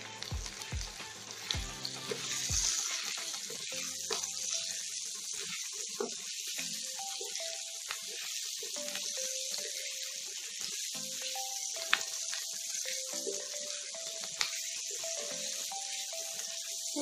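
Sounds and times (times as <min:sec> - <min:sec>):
background music with beat: 0:00.0 - 0:04.6
vegetables sizzling in oil: 0:00.0 - 0:17.0.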